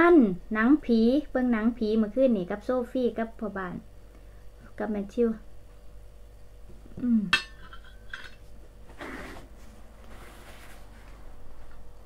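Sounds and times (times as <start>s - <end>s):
paper napkin rustling: 8.9s - 11.2s.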